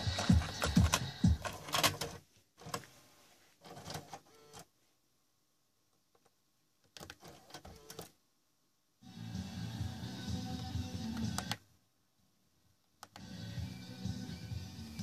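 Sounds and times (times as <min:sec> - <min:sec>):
car stereo music: 0:00.0 - 0:01.8, 0:09.2 - 0:11.6, 0:13.2 - 0:15.0.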